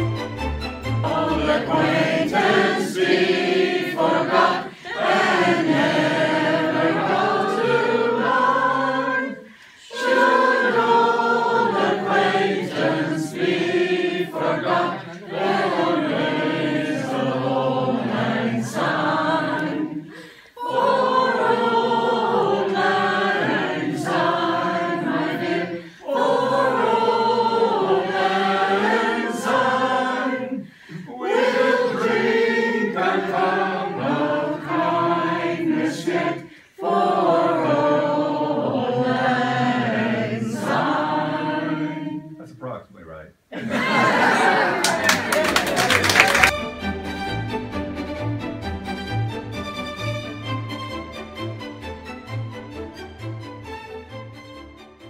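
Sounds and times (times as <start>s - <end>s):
men and women singing together: 1.0s - 42.4s.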